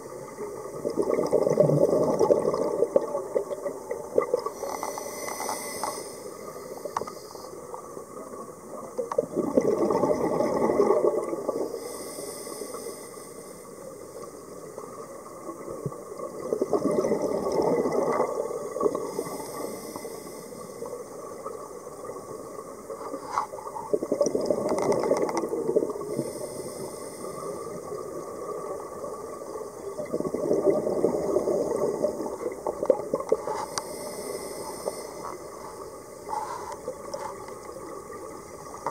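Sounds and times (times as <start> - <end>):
exhaled bubbles underwater: 0.0 - 5.0, 7.6 - 11.8, 13.8 - 38.9
regulator hiss: 4.5 - 7.6, 11.7 - 13.9, 19.1 - 20.9, 33.4 - 36.8.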